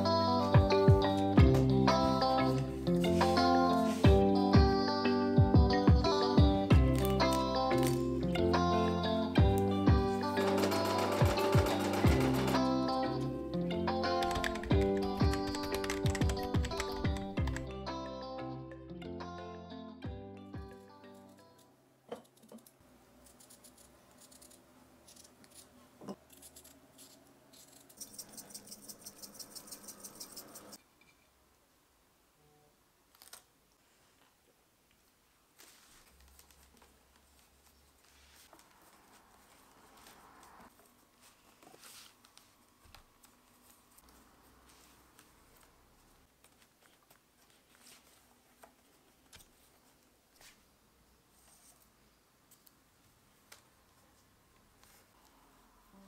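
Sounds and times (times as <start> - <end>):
paper rustling and clicking: 35.6 - 40.9.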